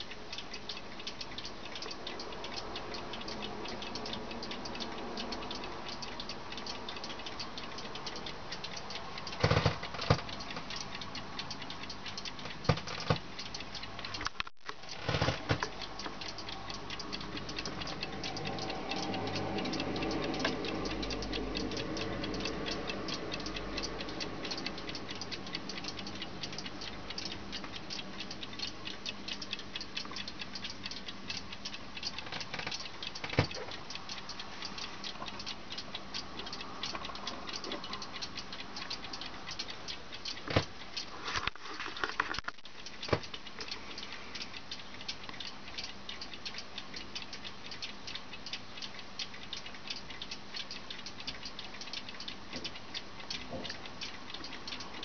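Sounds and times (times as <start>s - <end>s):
wall clock ticking: 0.0s - 55.0s.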